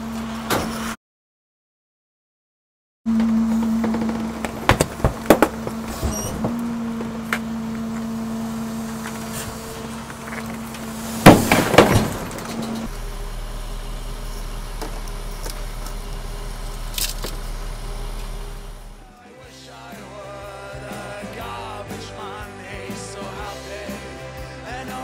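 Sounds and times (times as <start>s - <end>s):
hydraulic compactor hum: 3.1s - 19.2s
load cracking and crunching: 3.2s - 8.2s, 8.8s - 13.6s, 14.2s - 19.0s
glass breaking: 11.1s - 12.9s.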